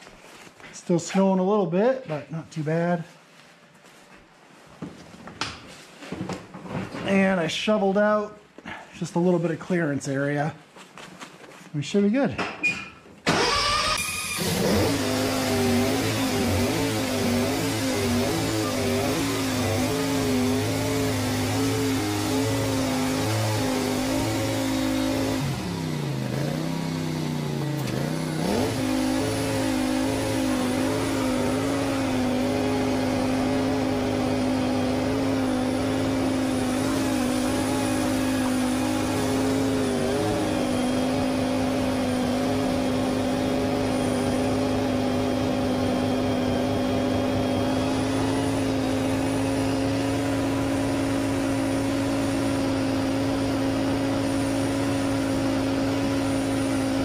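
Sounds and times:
lawn tractor engine running: 13.3s - 57.0s.

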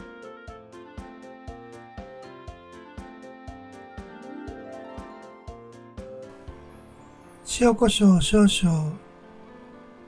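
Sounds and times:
background music with steady beat: 0.0s - 7.8s.

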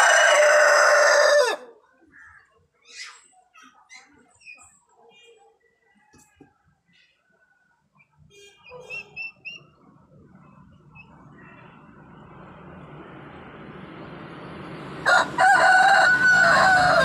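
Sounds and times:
rooster crowing: 0.0s - 1.7s, 15.0s - 17.0s
steady background noise: 0.0s - 17.0s.

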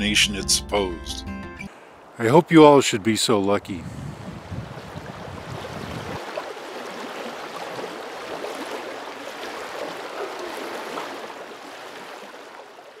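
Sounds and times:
stream rushing: 4.6s - 13.0s.

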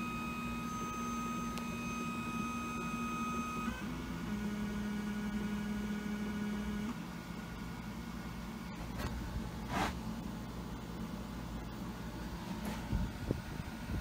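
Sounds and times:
machine motors whining: 0.0s - 7.1s.

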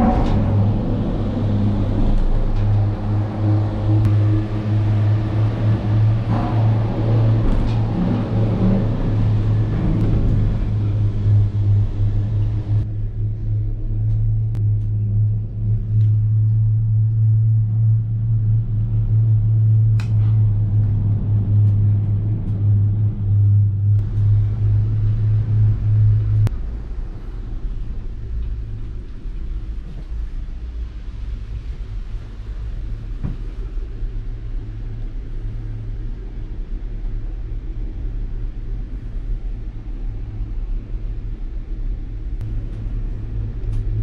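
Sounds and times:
cable car humming: 0.0s - 44.0s
cable car rumble: 0.0s - 44.0s.

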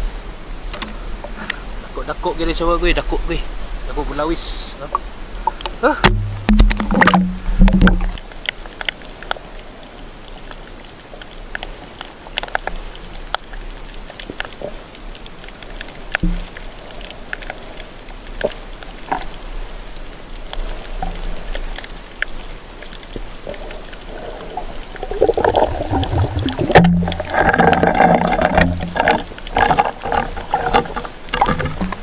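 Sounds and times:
underwater clicks and crackles: 0.6s - 32.0s
low hum: 6.1s - 8.2s.

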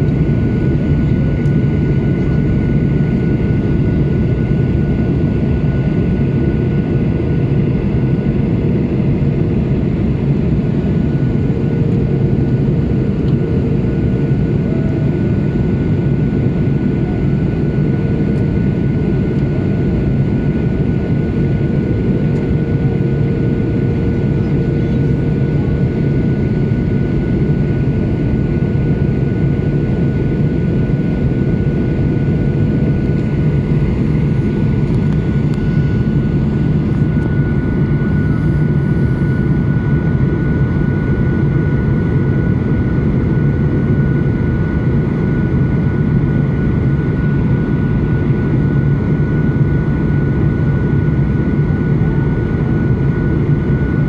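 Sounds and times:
airplane cabin engine rumble: 0.0s - 54.0s
high whine: 31.2s - 45.0s.

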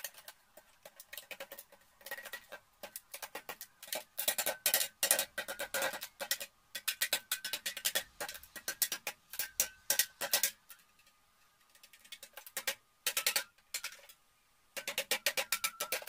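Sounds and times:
crow pecking a metal can: 0.0s - 14.2s, 14.8s - 16.0s.

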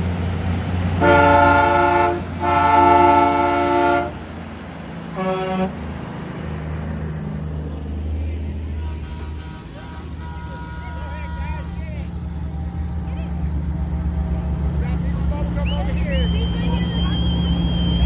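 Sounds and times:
diesel truck engines rumbling: 0.0s - 18.0s
truck air horn blasts: 1.0s - 4.2s, 5.1s - 5.8s, 8.7s - 11.8s.

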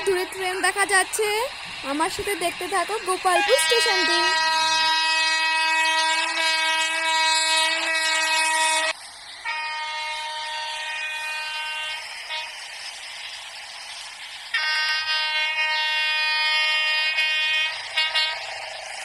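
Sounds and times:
train horn blasts: 3.2s - 12.7s, 14.5s - 18.6s.

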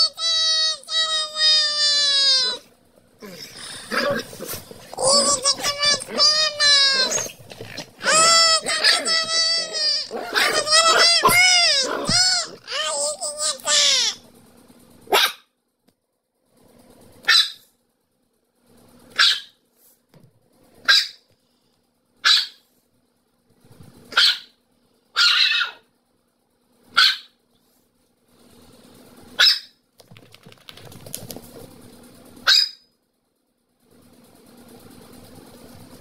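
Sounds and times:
dog barking: 15.1s - 15.5s, 17.2s - 17.7s, 19.1s - 19.6s, 20.8s - 21.2s, 22.2s - 22.6s, 24.1s - 25.8s, 26.9s - 27.4s, 29.3s - 29.8s, 32.4s - 32.8s.

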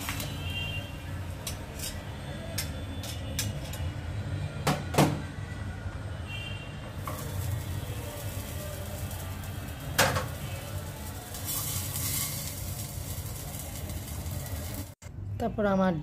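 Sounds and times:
metal spatula scraping on pan: 0.0s - 4.0s, 7.0s - 15.0s.

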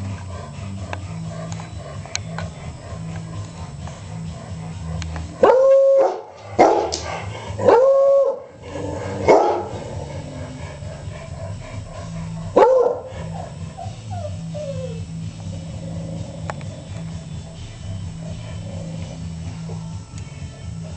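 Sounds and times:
dog barking and howling: 0.3s - 15.3s
dog whimpering: 10.7s - 15.3s.

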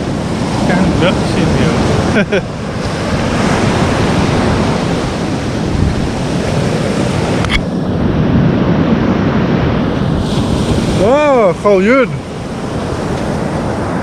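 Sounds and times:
surf breaking: 0.0s - 14.0s
wind buffeting microphone: 0.0s - 14.0s.

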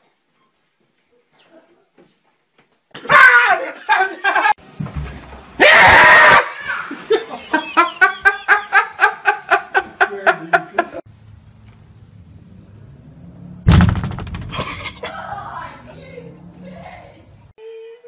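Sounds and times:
person laughing hard: 6.8s - 10.9s, 14.5s - 15.1s
loud thump: 13.6s - 14.9s
voices: 14.8s - 18.0s.

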